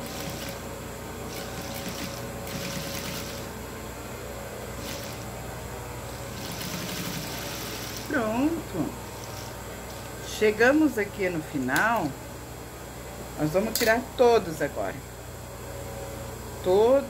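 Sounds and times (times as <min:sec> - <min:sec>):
sewing machine stitching: 0:00.0 - 0:00.6, 0:01.3 - 0:03.5, 0:04.8 - 0:05.2, 0:06.3 - 0:08.1.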